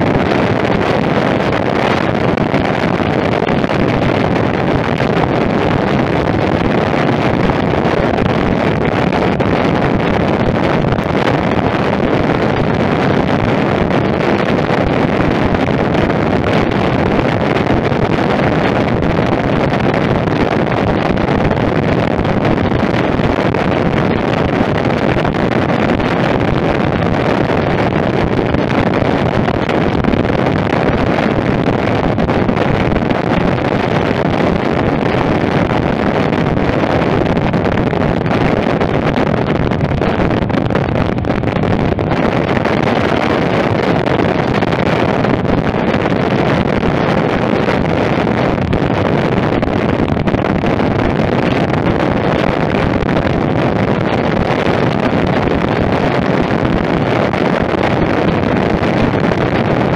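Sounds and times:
wind rush over microphone: 0.0 - 59.9.

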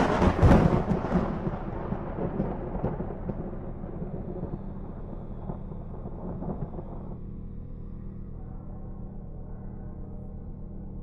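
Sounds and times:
thunderclap crash and rumble: 0.0 - 7.2
low steady drone: 0.0 - 11.0.

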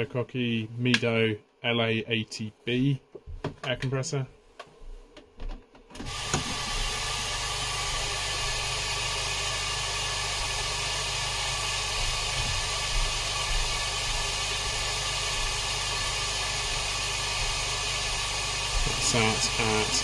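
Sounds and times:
air hissing: 6.0 - 20.0
air pump humming: 6.0 - 20.0.

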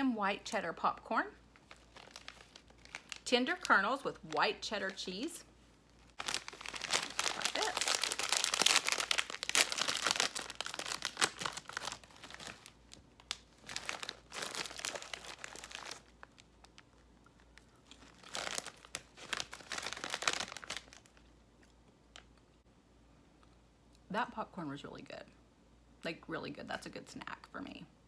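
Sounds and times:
plastic snack bag crinkling: 1.5 - 21.3.

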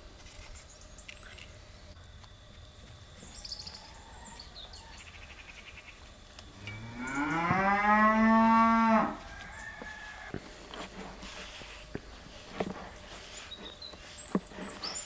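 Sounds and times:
cow mooing: 6.6 - 9.2.

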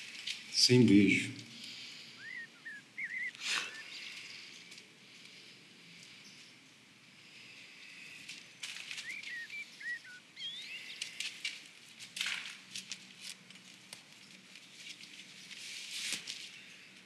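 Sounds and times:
bird chirps: 1.6 - 4.7, 8.8 - 11.2.

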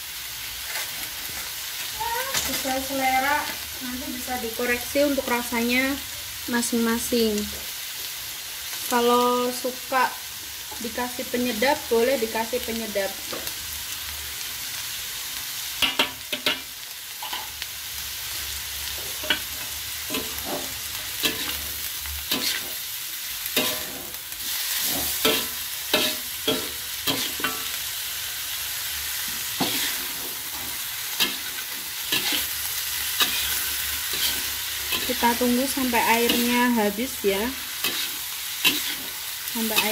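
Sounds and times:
food sizzling in a metal wok: 0.0 - 39.9
metal spatula scraping pan: 29.5 - 36.6, 37.7 - 39.9.

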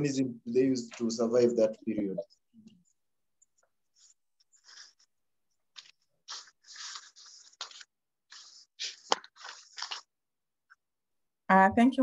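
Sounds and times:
scraping and rustling on microphone: 3.9 - 10.1.

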